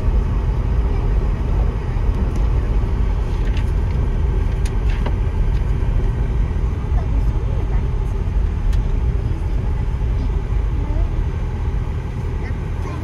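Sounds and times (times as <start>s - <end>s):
car tyres and engine rumbling: 0.0s - 13.0s.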